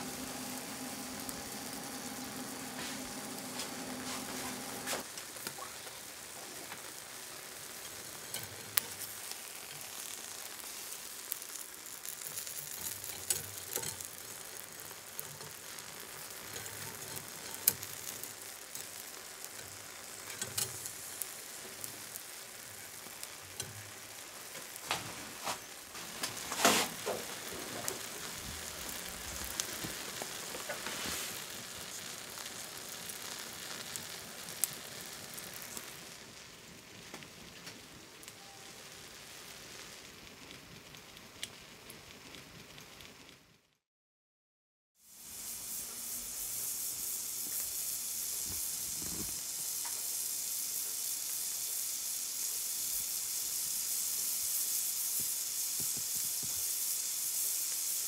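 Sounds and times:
loud hiss: 0.0 - 36.8, 45.0 - 58.0
fish sizzling over charcoal: 0.0 - 43.7, 45.0 - 58.0.

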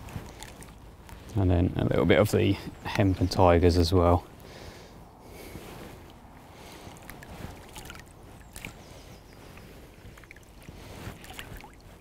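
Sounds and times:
small splashes: 0.0 - 1.4, 6.6 - 12.0
water sloshing around wader: 0.0 - 2.3, 5.3 - 12.0.

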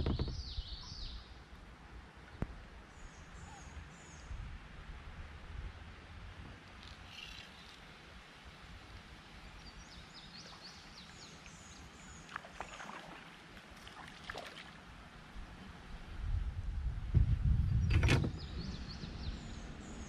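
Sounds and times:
flowing water hiss: 6.6 - 15.9
small bird chirping: 6.8 - 7.9.

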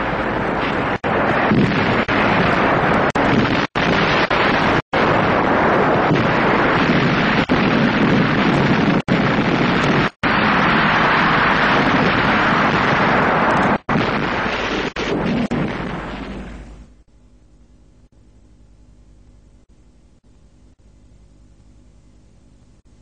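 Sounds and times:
explosions and battle noise: 0.0 - 17.1.

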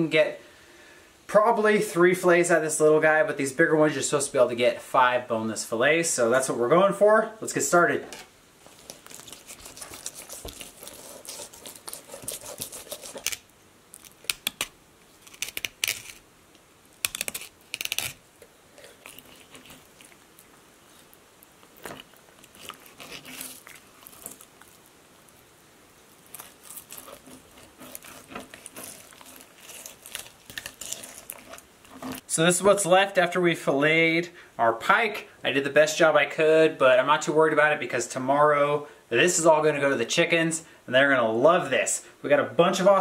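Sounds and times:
knife slicing and scraping fish: 8.8 - 13.4, 21.8 - 24.5, 26.3 - 32.2.

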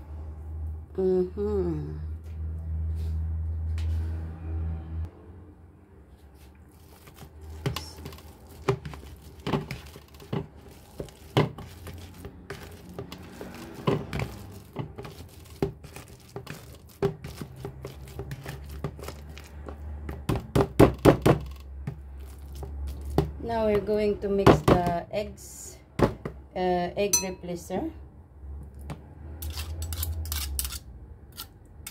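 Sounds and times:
utensil mashing bananas in bowl: 6.7 - 25.0.

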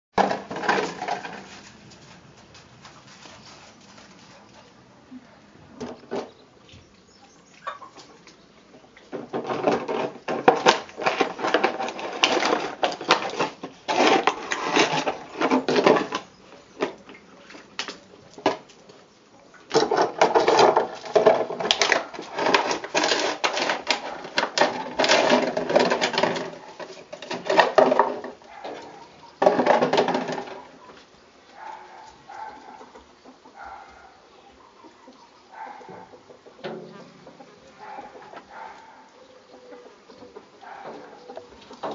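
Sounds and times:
plastic bottle crackling: 9.2 - 17.0, 19.7 - 28.6.

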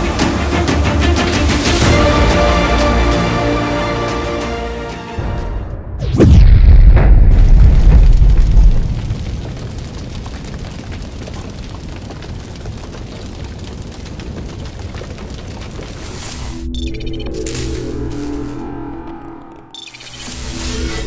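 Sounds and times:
deep loud boom: 5.7 - 9.8
crackling fire hiss: 7.4 - 21.0.

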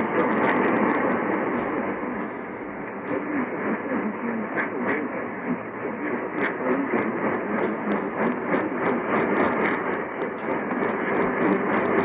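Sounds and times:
radio static hiss: 0.0 - 12.0
static crackles: 0.0 - 12.0.

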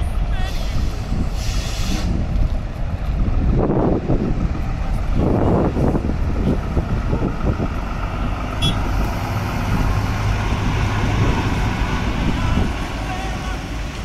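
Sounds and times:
truck diesel engine rumble: 0.0 - 14.0.

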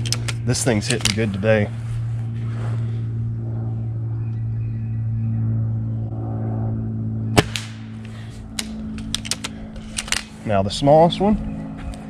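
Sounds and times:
steady low hum: 0.0 - 12.0
air rifle shot crack: 7.4 - 10.0.

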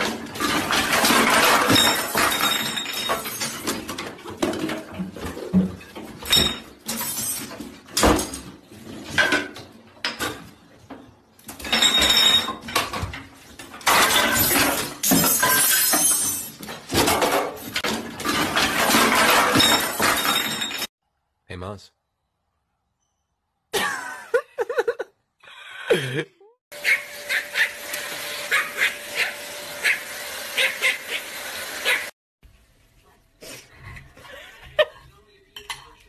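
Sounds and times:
hard objects crashing and clattering: 0.0 - 10.5, 11.4 - 20.9.

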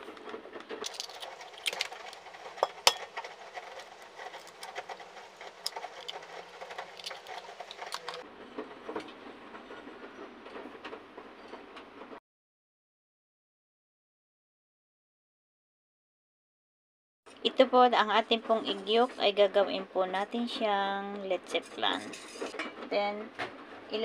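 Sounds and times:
egg cracking: 0.0 - 8.2.

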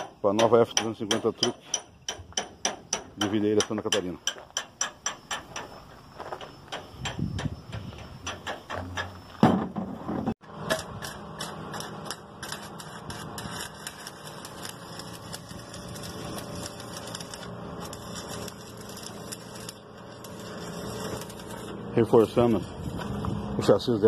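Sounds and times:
arc welding crackling sizzle: 10.4 - 24.0.

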